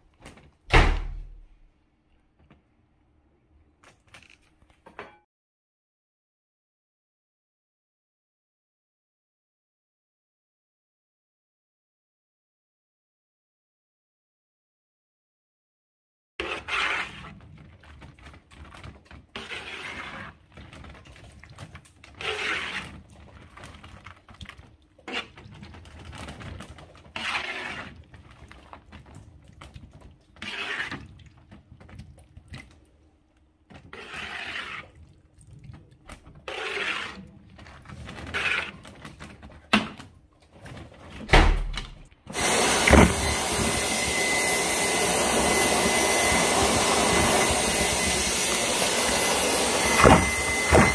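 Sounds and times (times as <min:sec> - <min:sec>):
vacuum cleaner running: 0:42.3 - 0:50.9.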